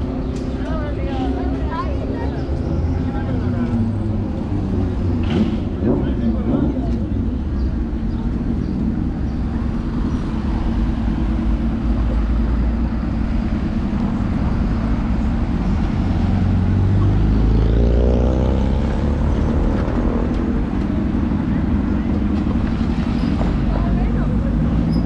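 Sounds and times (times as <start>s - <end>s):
bus rumbling: 0.0s - 25.0s
car engines passing: 0.0s - 25.0s.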